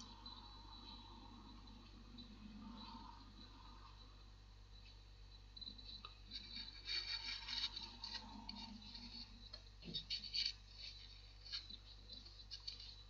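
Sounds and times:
rubbing and scraping of plastic model: 5.9s - 13.0s.

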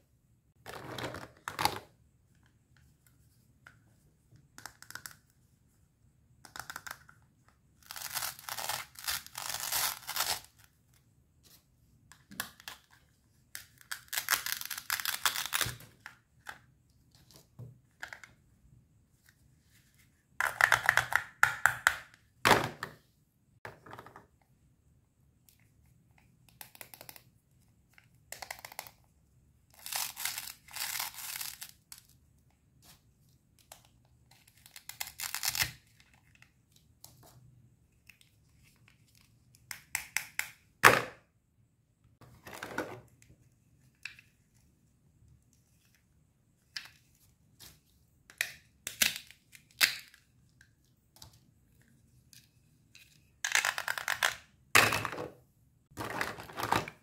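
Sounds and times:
plastic pieces clicking and knocking: 20.4s - 22.9s, 53.4s - 55.3s.

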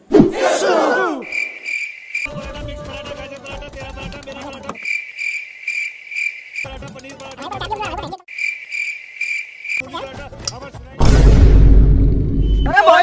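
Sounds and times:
cricket chirping trill: 1.2s - 9.9s.

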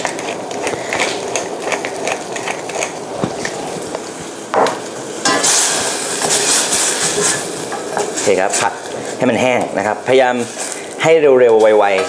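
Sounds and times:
spinach sizzling in saucepan: 3.8s - 12.0s.

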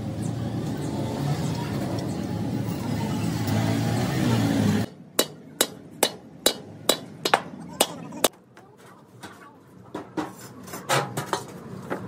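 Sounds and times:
hammer tapping steel: 4.9s - 8.0s.

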